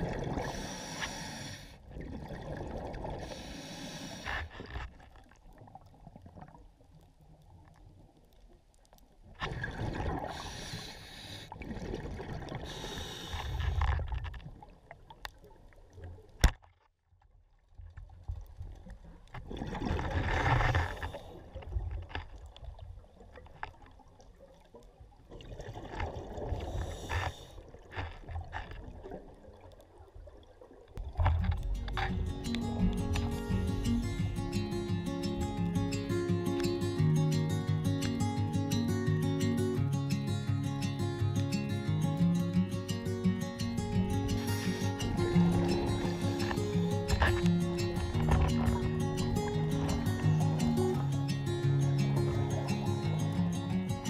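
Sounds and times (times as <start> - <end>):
diver exhaling bubbles underwater: 0.0 - 0.8, 1.8 - 3.4, 9.4 - 10.6, 11.5 - 14.1, 19.4 - 21.6, 44.1 - 50.6
water noise: 0.0 - 16.8, 17.4 - 54.0.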